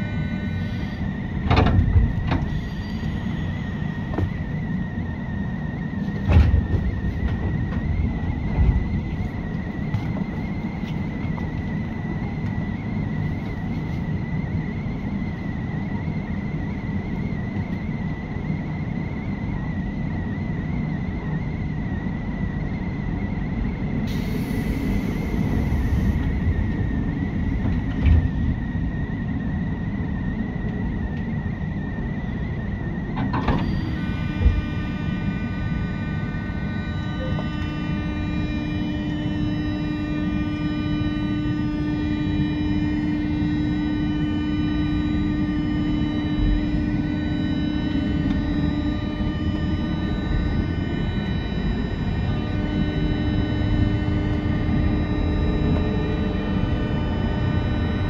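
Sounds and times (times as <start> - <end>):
train rumble with high whine: 0.0 - 58.0.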